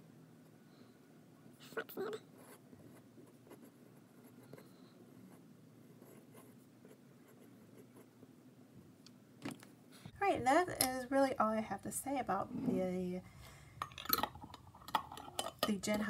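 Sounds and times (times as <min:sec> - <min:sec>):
fountain pen scratching on paper: 0:02.4 - 0:08.1.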